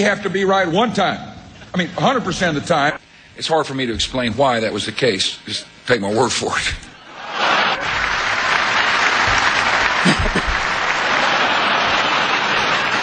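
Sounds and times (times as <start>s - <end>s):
audience applauding: 7.3s - 13.0s.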